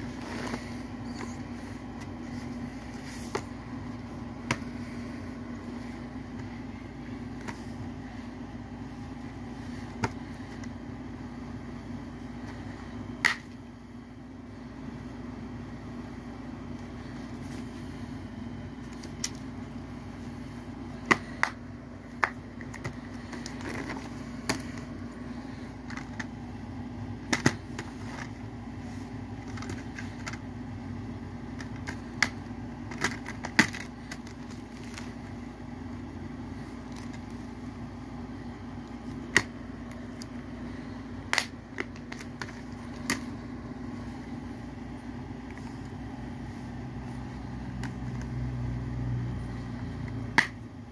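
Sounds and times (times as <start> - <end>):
steady low hum: 0.0 - 50.9
plastic cases clicking: 29.4 - 30.4, 31.6 - 35.1.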